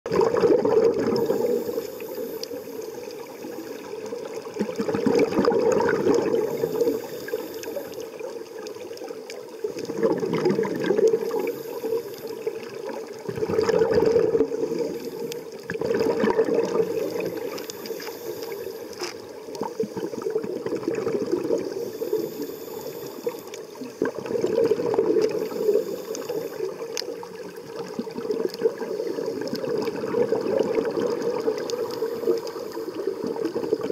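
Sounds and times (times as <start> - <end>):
exhaled bubbles gurgling underwater: 0.1 - 33.9
faint high regulator hiss: 1.2 - 4.0, 6.4 - 8.2, 11.2 - 12.7, 16.8 - 19.2, 21.6 - 24.0, 25.3 - 26.8.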